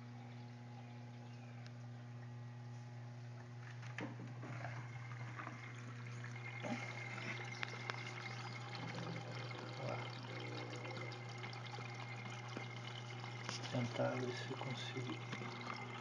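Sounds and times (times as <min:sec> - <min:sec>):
steady low hum: 0:00.0 - 0:16.0
water pouring into washer: 0:04.3 - 0:16.0.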